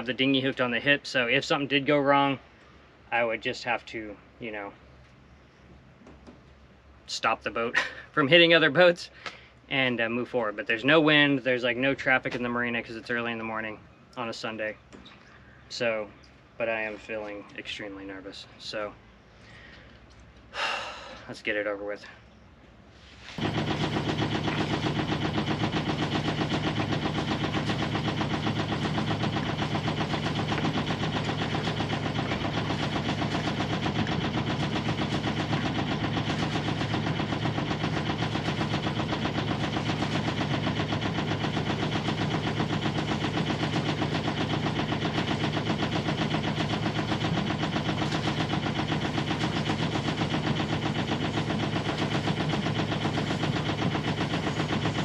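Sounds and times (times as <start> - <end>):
boat engine running: 23.4 - 55.0.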